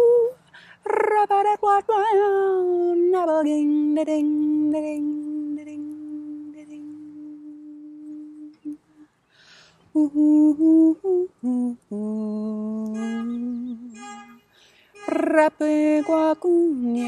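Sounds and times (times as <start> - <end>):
woman singing wordless notes: 0.0 - 9.0, 9.9 - 17.0
breath: 0.5 - 0.8, 8.9 - 9.9, 14.5 - 15.0
woman humming: 4.4 - 9.0, 10.0 - 14.1, 15.0 - 17.0.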